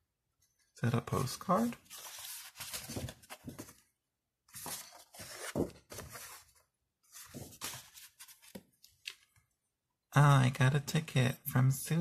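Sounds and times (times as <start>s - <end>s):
paper and card rustling: 1.0s - 3.9s, 4.5s - 9.4s.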